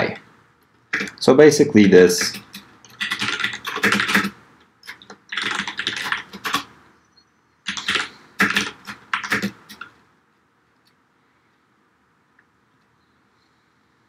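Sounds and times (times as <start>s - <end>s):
typing on computer keyboard: 0.8s - 1.2s, 2.0s - 6.7s, 7.6s - 10.0s.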